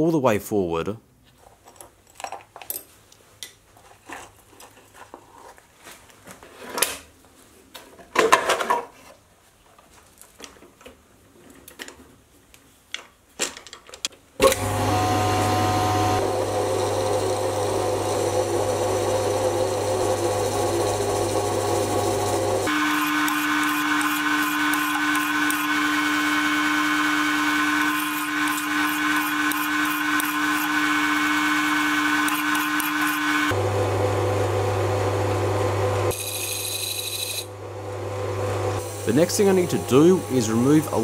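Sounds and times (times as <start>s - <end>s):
metal parts clicking and clattering: 1.6s - 3.0s, 12.9s - 14.2s
lathe cutting steel: 14.4s - 33.6s, 36.1s - 37.6s, 38.6s - 41.0s.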